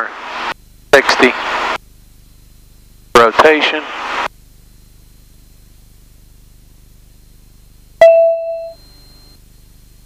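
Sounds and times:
sharp ding: 0:08.0 - 0:08.9.

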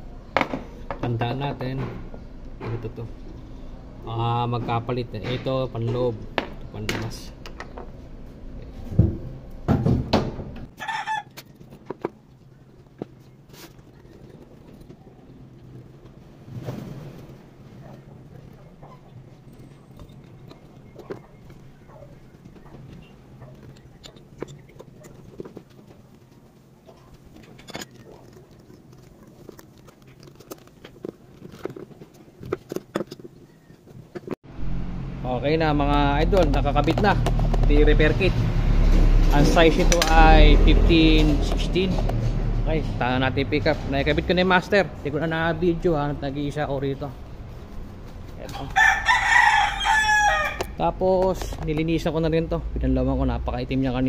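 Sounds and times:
rooster crowing: 0:10.8 - 0:11.4, 0:48.6 - 0:50.8
small metal and rubber clicks: 0:27.3 - 0:34.4.

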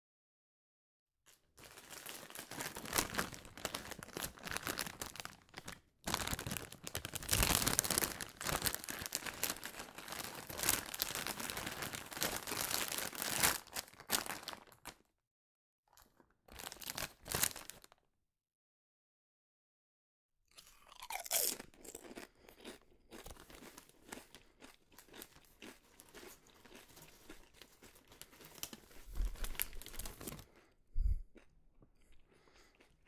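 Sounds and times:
chip bag crinkling: 0:01.3 - 0:15.1, 0:15.9 - 0:18.0, 0:20.9 - 0:30.7.

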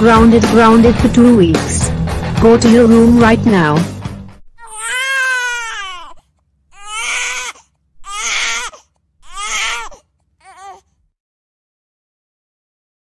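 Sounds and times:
cartoon child wailing and sobbing: 0:04.6 - 0:06.2, 0:06.8 - 0:10.8.

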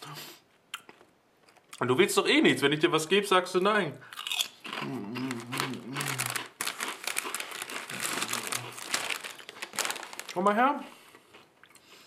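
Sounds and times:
plastic snack bag crinkling: 0:04.2 - 0:11.5
man murmuring: 0:04.8 - 0:06.4.

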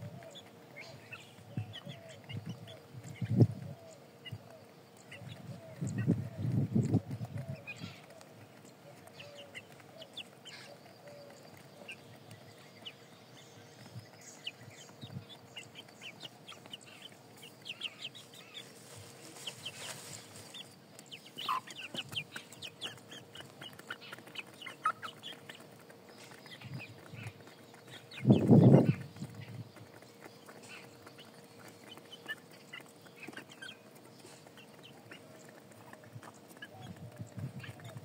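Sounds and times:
hens clucking: 0:00.0 - 0:38.0
beaks tapping on concrete: 0:20.5 - 0:38.0.

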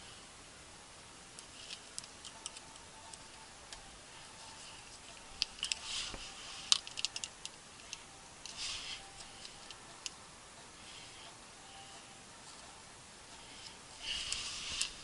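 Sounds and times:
small parts clicking: 0:01.4 - 0:03.8, 0:04.4 - 0:10.2
parts rustling: 0:01.4 - 0:10.2, 0:13.3 - 0:15.0.

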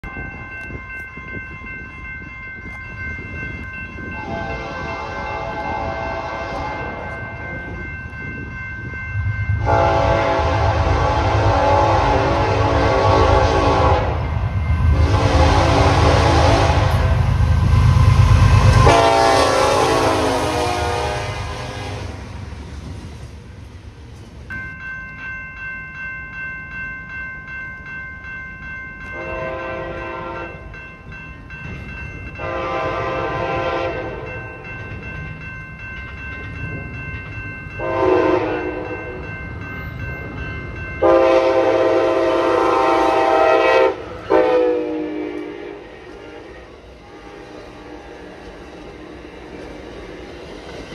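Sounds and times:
grade crossing bells ringing: 0:00.0 - 0:50.9
locomotive air horn: 0:04.2 - 0:07.0, 0:09.6 - 0:14.3, 0:14.9 - 0:17.3, 0:18.8 - 0:22.2, 0:29.2 - 0:30.6, 0:32.4 - 0:34.3, 0:37.8 - 0:39.0, 0:41.0 - 0:48.0
passenger train horn blasts: 0:04.2 - 0:07.2, 0:09.5 - 0:22.4, 0:29.1 - 0:30.6, 0:32.4 - 0:34.5, 0:37.8 - 0:39.2, 0:41.0 - 0:50.2.

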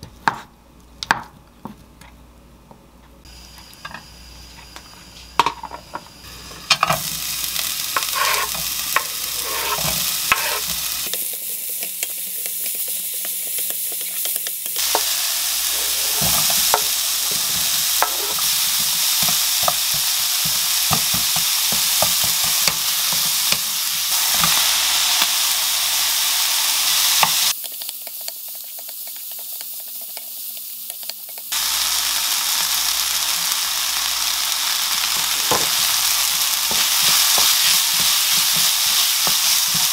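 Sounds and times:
oil sizzling in frying pan: 0:03.2 - 0:39.9
spatula tapping and scraping: 0:08.0 - 0:11.2, 0:16.0 - 0:23.7, 0:36.7 - 0:39.9.

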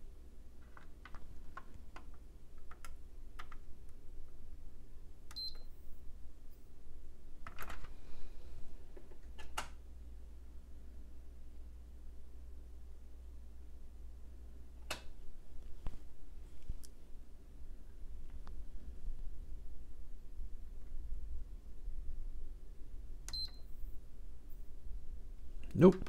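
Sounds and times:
low hum: 0:09.8 - 0:25.8.

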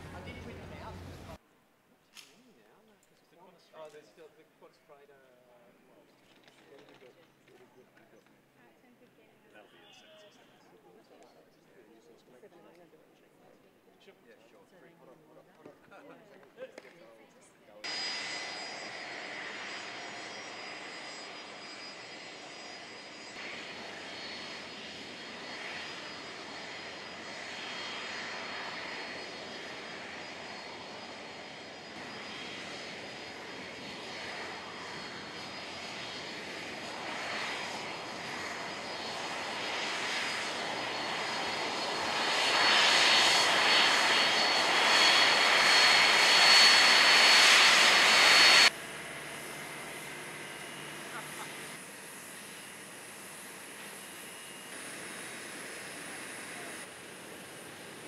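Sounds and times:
jet engine high whine: 0:00.0 - 0:01.4, 0:17.8 - 0:58.0.

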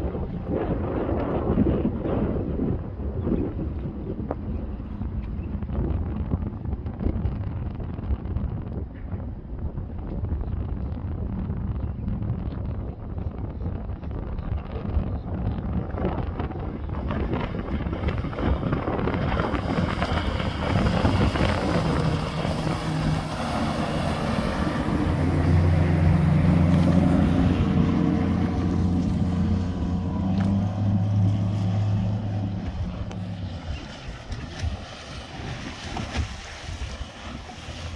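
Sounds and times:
wind buffeting microphone: 0:00.0 - 0:37.9
boat engine passing: 0:15.5 - 0:37.9.

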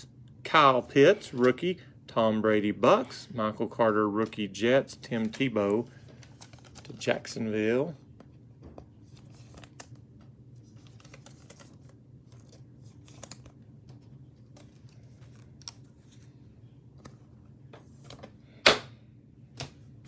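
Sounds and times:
low room hum: 0:00.0 - 0:20.0
trading cards clicking and rustling: 0:04.1 - 0:18.9.

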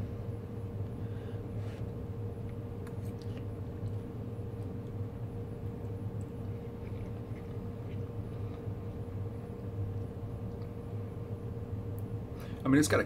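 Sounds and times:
steady low hum: 0:00.0 - 0:13.0
person chewing: 0:01.8 - 0:10.8.

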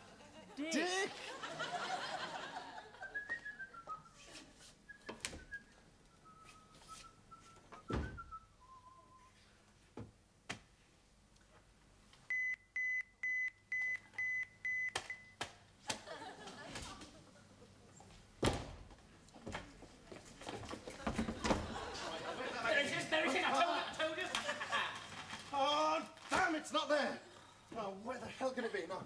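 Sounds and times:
audience laughter: 0:00.0 - 0:03.2, 0:16.0 - 0:17.0, 0:21.1 - 0:25.2
person whistling a tune: 0:03.0 - 0:04.2, 0:04.9 - 0:09.4.

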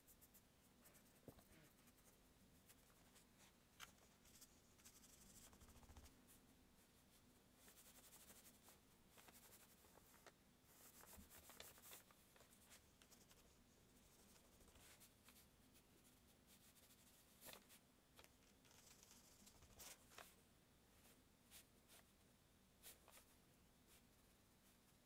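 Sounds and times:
paintbrush scratchy strokes: 0:00.0 - 0:17.8.

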